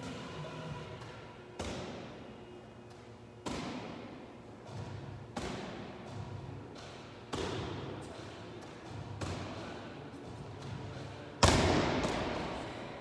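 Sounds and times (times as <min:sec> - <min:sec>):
medicine ball impacts: 0:01.6 - 0:02.2, 0:03.4 - 0:08.0, 0:11.4 - 0:12.6.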